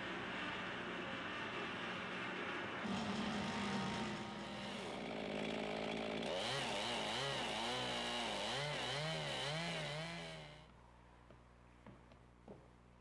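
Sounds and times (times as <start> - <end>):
chainsaw cutting log: 3.9 - 10.6.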